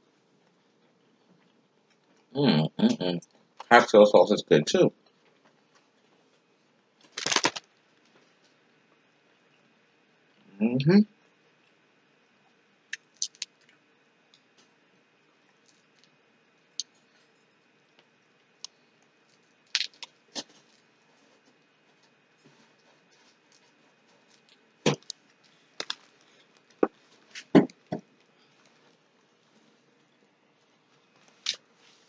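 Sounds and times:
crab shells cracking: 0:07.0 - 0:07.7, 0:12.9 - 0:13.6, 0:19.7 - 0:20.5, 0:24.9 - 0:26.2.

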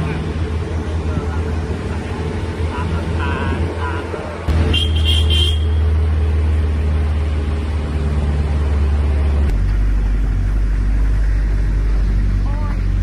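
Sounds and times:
car driving rumble: 0:00.0 - 0:13.0.

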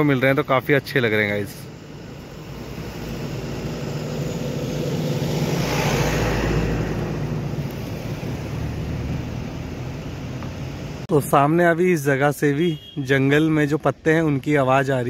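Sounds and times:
vehicle driving past: 0:02.2 - 0:10.4.

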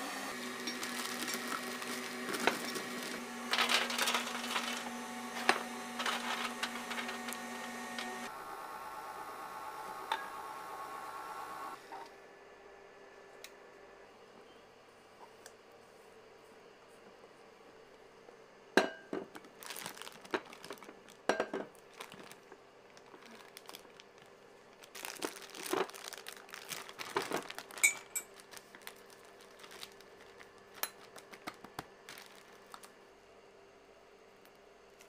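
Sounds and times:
plastic piping bag crinkling: 0:00.6 - 0:08.2, 0:19.5 - 0:33.0.

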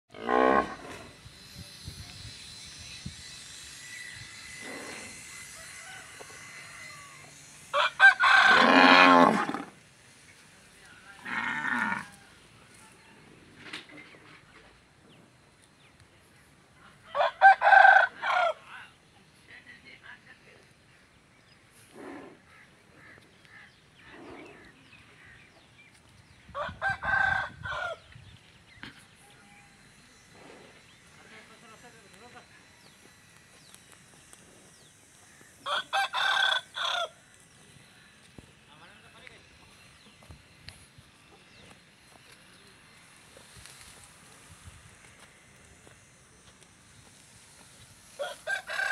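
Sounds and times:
rooster crowing: 0:05.2 - 0:09.4, 0:17.1 - 0:18.6, 0:26.6 - 0:28.1, 0:35.6 - 0:37.2, 0:48.2 - 0:48.9
cattle mooing: 0:08.5 - 0:09.7, 0:11.2 - 0:12.2.

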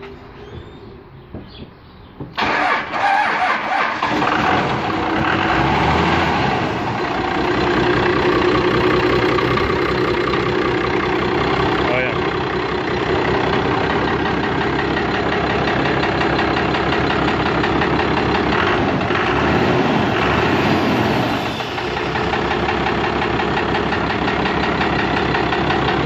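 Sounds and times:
diesel engine idling: 0:02.3 - 0:26.0
engine rod knocking: 0:22.2 - 0:26.0.

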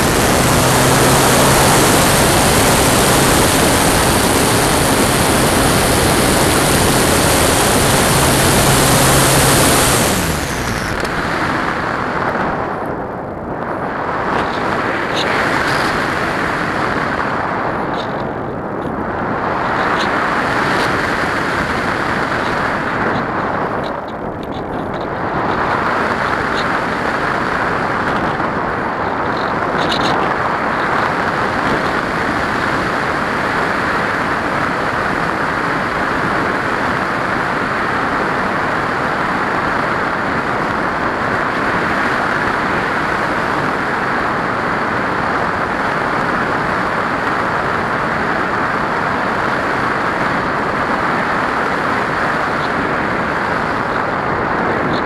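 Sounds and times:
air rushing over camera: 0:00.0 - 0:34.6.

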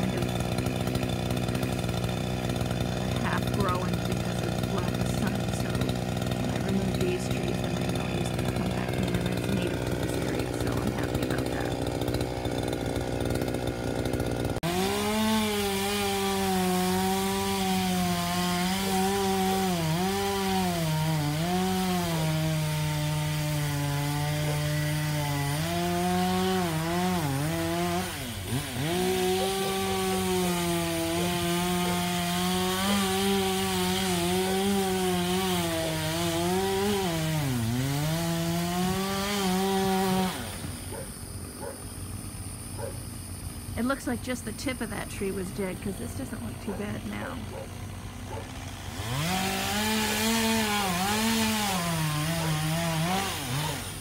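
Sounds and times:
chainsaw running at high revs: 0:00.0 - 0:54.0.

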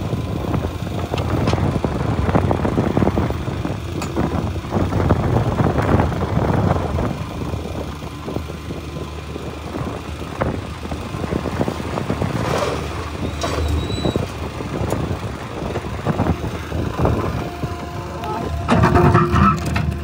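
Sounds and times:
diesel engine rumble: 0:00.0 - 0:20.0
machinery knocks and clatter: 0:18.5 - 0:20.0.

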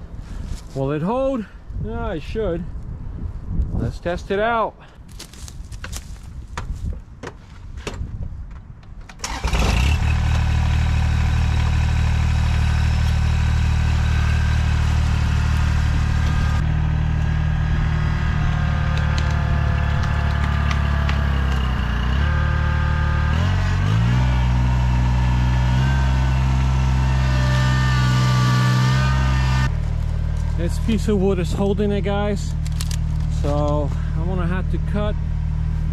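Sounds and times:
tractor diesel engine straining: 0:09.0 - 0:35.9.

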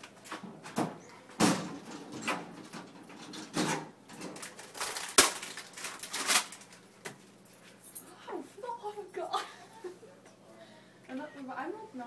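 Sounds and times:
rustling handling noises: 0:04.1 - 0:09.1.

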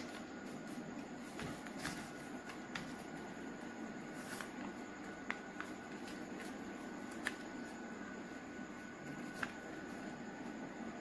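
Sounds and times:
paper rustling and crackling: 0:00.0 - 0:03.4, 0:04.1 - 0:07.8, 0:09.0 - 0:10.1.

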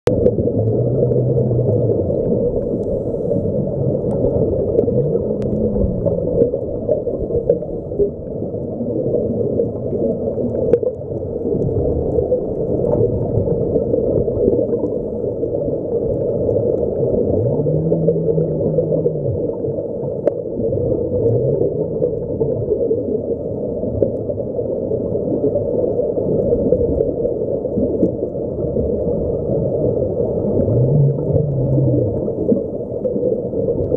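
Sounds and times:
low hum: 0:00.0 - 0:09.4, 0:16.7 - 0:22.4, 0:28.6 - 0:33.0
muffled underwater rush: 0:00.0 - 0:33.9.

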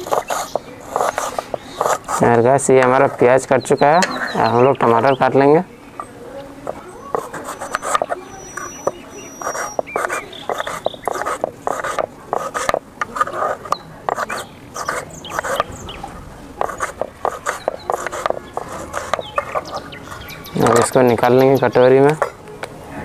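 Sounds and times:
knife tapping on wooden board: 0:16.6 - 0:19.6.

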